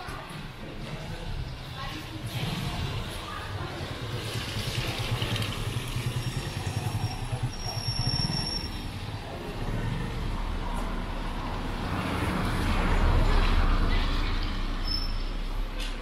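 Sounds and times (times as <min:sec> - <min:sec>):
motorcycle engine low drone: 0:02.2 - 0:14.3.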